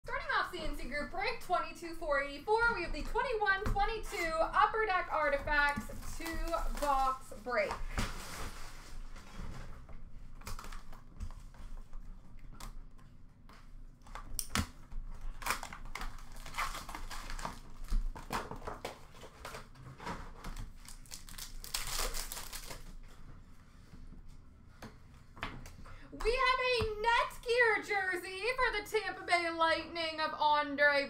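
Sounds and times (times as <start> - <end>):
card pack wrappers crinkling and tearing: 15.2 - 19.7, 20.5 - 23.0.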